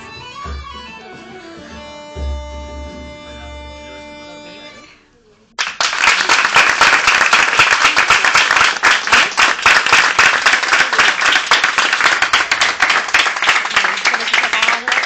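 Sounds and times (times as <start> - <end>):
audience applauding: 5.6 - 15.0.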